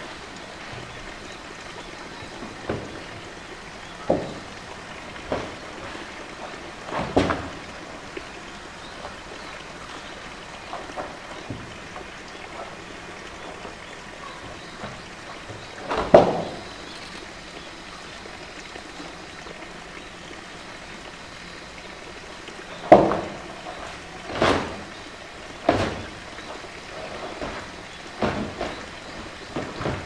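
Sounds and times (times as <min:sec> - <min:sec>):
background hiss: 0:00.0 - 0:30.0
hollow knocks of plastic drum: 0:22.8 - 0:24.9.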